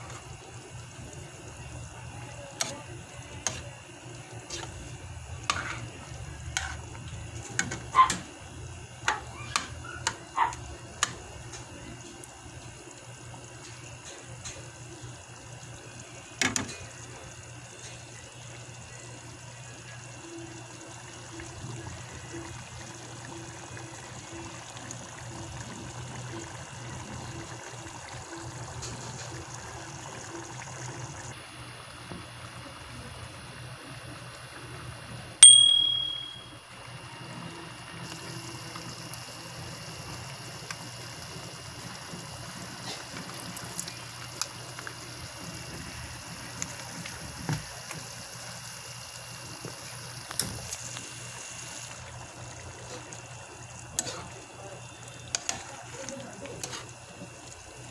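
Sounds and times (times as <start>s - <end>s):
food simmering in pan: 0.0s - 35.4s, 36.4s - 57.9s
bright ding: 35.4s - 36.6s.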